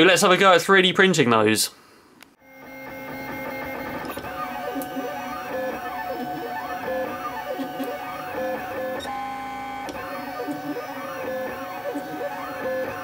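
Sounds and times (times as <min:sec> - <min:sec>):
stepper motors whining: 0:02.6 - 0:13.0.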